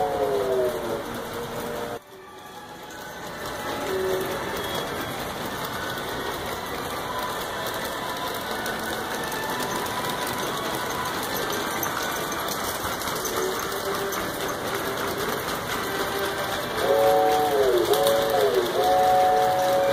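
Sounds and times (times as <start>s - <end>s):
model trains clattering on track: 0.0s - 19.9s.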